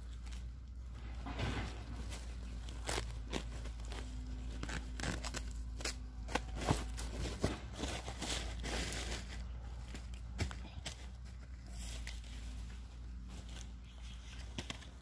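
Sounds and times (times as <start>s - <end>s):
plastic fabric crinkling: 0.0s - 10.2s.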